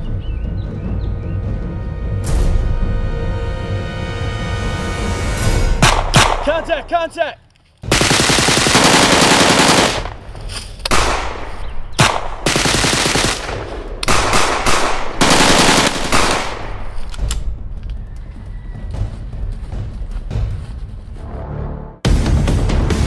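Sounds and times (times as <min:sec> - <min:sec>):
rapid gunfire volleys: 0:05.8 - 0:06.7, 0:07.9 - 0:10.2, 0:10.9 - 0:17.0.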